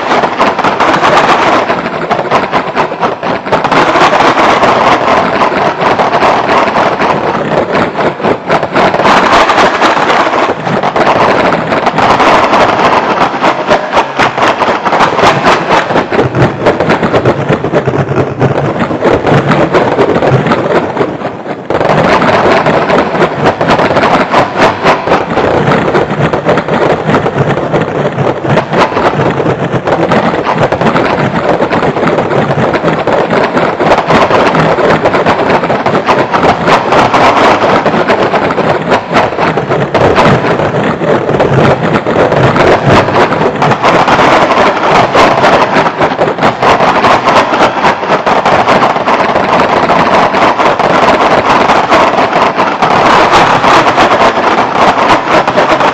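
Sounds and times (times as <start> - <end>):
noisy electronic music with rapid clicks: 9.9 - 52.4.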